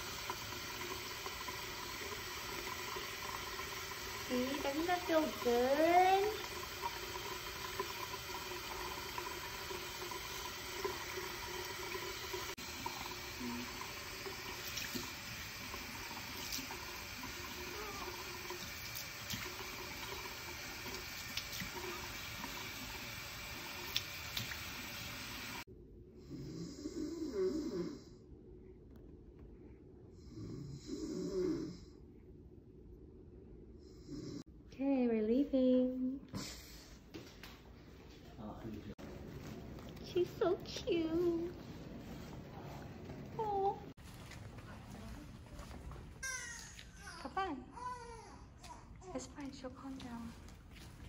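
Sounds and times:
tap water running into sink: 0.0s - 25.6s.

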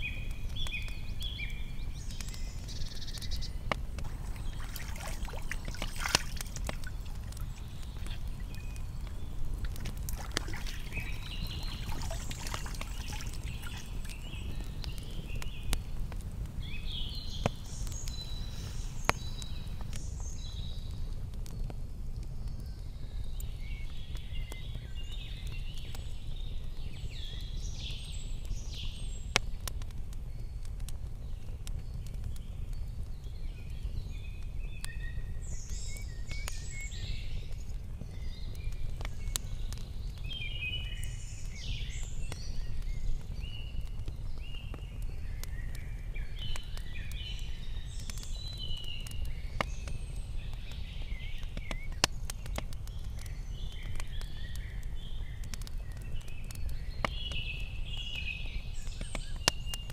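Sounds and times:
small birds singing and chirping: 0.0s - 59.9s
low outdoor rumble: 1.6s - 20.0s.

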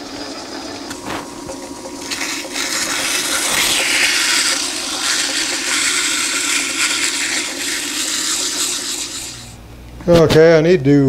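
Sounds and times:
lathe humming: 0.0s - 9.8s
abrasive cloth scrubbing metal: 2.0s - 9.6s.

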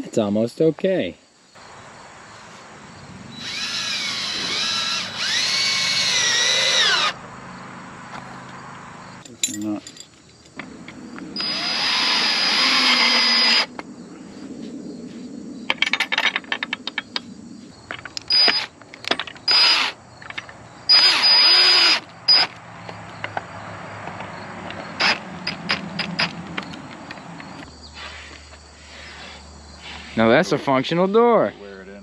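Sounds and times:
cordless drill driving screws: 3.4s - 7.2s, 11.4s - 13.7s, 18.3s - 18.7s, 19.5s - 20.0s, 20.9s - 22.5s.

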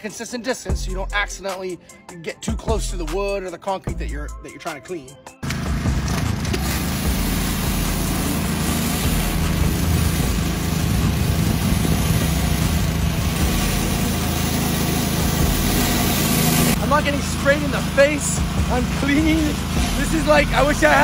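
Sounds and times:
pressure washer hum: 5.4s - 21.0s
water jets spraying: 5.4s - 21.0s.

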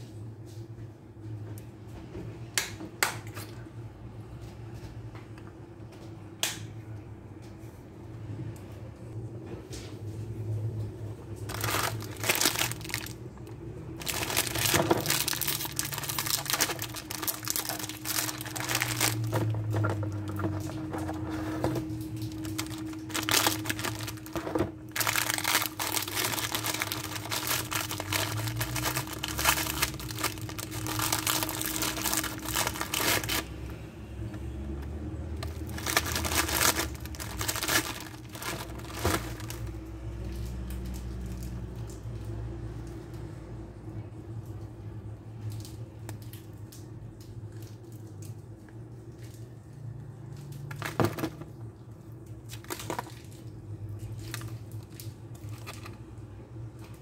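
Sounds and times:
plastic packet crinkling: 11.5s - 33.7s, 35.4s - 41.5s, 50.4s - 56.1s.

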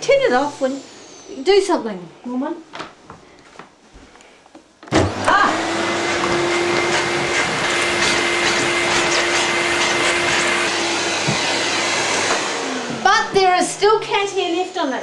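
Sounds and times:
vacuum cleaner running: 0.0s - 1.3s, 4.9s - 14.8s.

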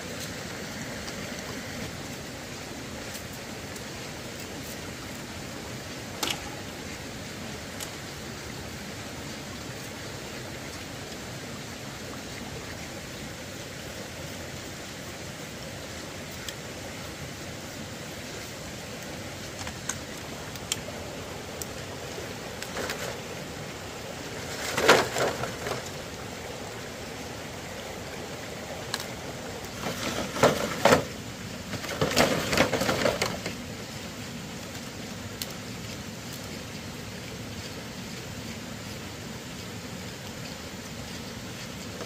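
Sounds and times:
steady outdoor hiss: 0.0s - 42.0s
knocking and rustling: 29.8s - 31.1s.

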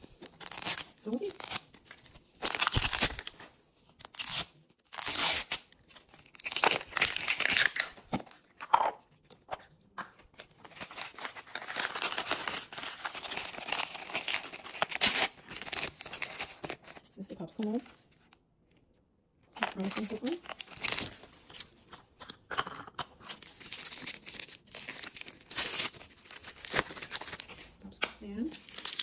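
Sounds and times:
plastic wrapper tearing and crinkling: 0.0s - 8.4s, 10.4s - 17.2s, 19.6s - 21.8s, 22.5s - 29.0s
label wrap peeled and torn: 0.1s - 8.0s, 10.4s - 17.1s, 22.8s - 27.8s, 28.6s - 29.0s.

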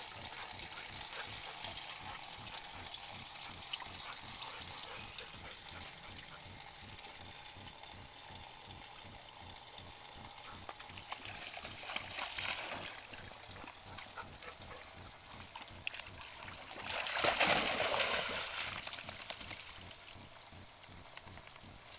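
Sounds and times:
water trickling from a pipe: 0.0s - 21.9s
dog splashing through water: 10.4s - 20.0s.

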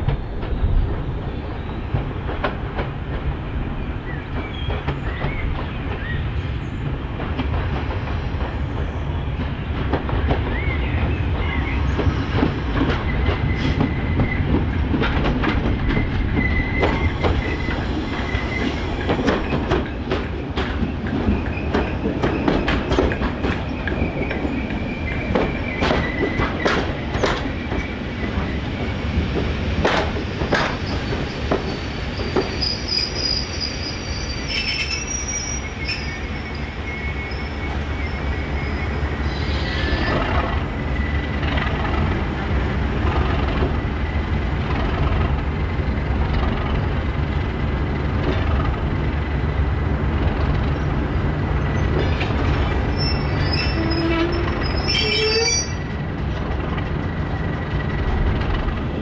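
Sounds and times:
diesel locomotive engine rumbling: 0.0s - 59.0s
wheels clicking over rail joints: 19.0s - 28.6s
high-pitched wheel squeal: 32.5s - 40.2s, 52.9s - 55.9s.

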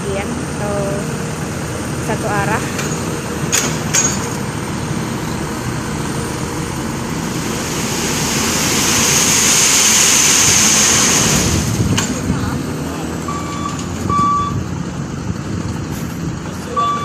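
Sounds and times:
diesel truck engine running: 0.0s - 17.0s
hydraulic hissing rush: 6.8s - 12.4s.

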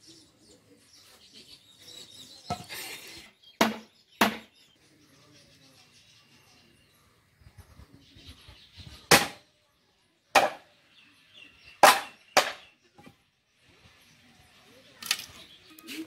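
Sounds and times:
machete chopping bamboo: 3.6s - 4.5s, 9.1s - 9.4s, 10.4s - 10.6s, 11.8s - 12.6s.

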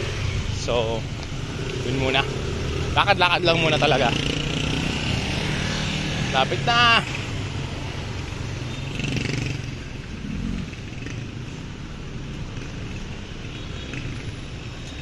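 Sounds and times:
motorcycle traffic rumble: 0.0s - 15.0s.

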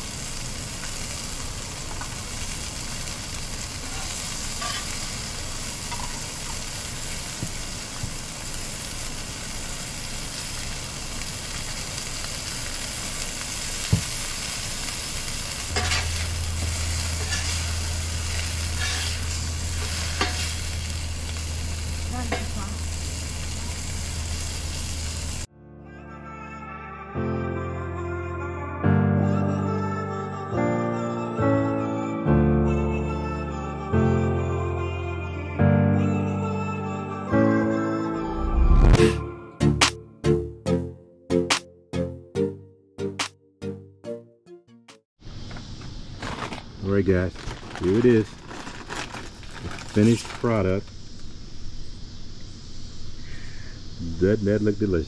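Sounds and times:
patties sizzling on a griddle: 0.0s - 25.5s, 45.4s - 55.0s
metal spatula scraping griddle: 4.5s - 5.1s, 15.7s - 21.0s
low steady hum: 15.6s - 25.5s.

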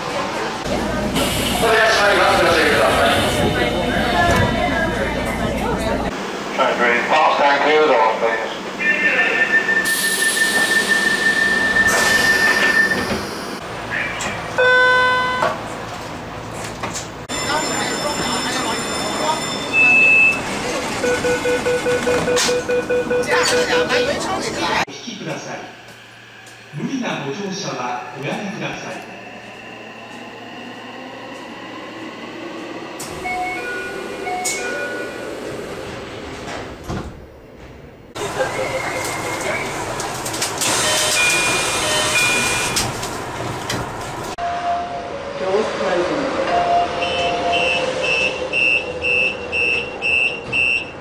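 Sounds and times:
subway door chime: 9.1s - 15.7s, 17.3s - 24.8s, 33.0s - 43.0s, 46.4s - 51.0s
high door warning beep: 17.3s - 24.4s, 40.6s - 42.8s, 46.5s - 51.0s
train doors sliding shut: 33.0s - 44.4s.

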